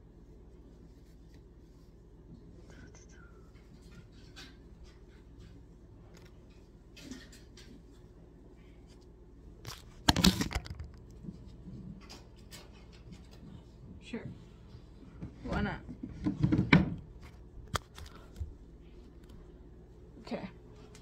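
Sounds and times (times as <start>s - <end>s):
phone handling clicks and rustles: 9.6s - 11.2s, 17.6s - 18.4s.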